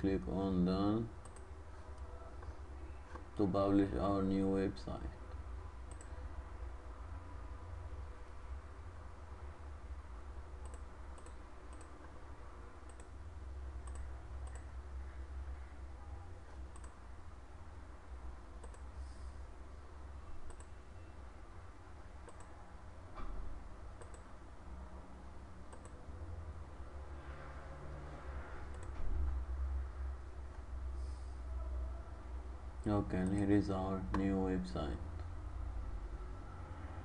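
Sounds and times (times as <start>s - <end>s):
steady low hum: 0.0s - 37.0s
computer mouse clicking: 1.2s - 1.5s, 5.8s - 6.2s, 10.6s - 12.2s, 12.8s - 13.2s, 13.8s - 14.7s, 16.6s - 17.0s, 18.6s - 18.9s, 20.4s - 20.8s, 22.2s - 22.6s, 24.0s - 24.3s, 25.7s - 26.0s, 28.7s - 29.0s.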